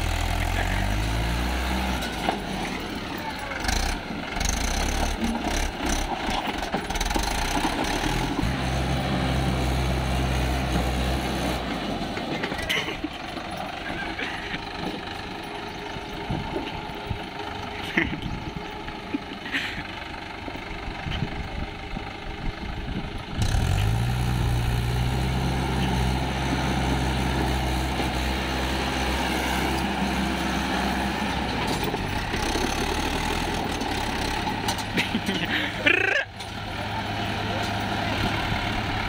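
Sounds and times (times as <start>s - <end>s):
tractor diesel engine running: 0.0s - 39.0s.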